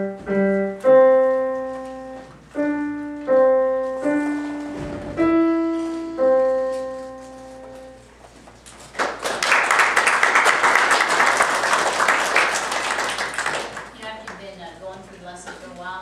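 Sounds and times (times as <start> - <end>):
piano chord ringing: 0.0 - 8.2
audience applauding: 8.9 - 14.4.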